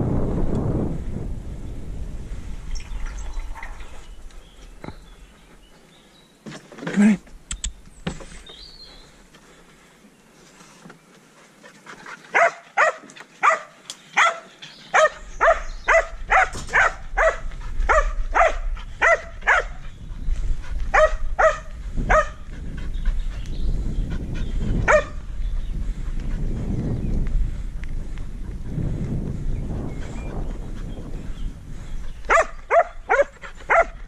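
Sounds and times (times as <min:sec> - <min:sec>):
low rumble: 0:00.0 - 0:05.6
dog barking: 0:12.3 - 0:19.8, 0:20.9 - 0:22.4, 0:24.9 - 0:25.2, 0:32.3 - 0:34.0.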